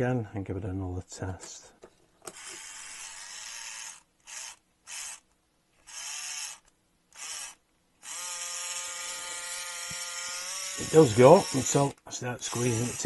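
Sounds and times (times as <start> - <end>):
small electric motor whirring: 2.3 - 5.2, 5.8 - 13.0.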